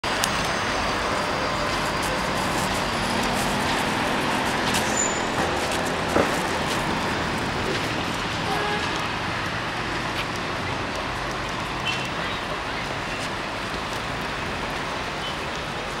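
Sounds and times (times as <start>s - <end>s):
street traffic noise: 0.0s - 16.0s.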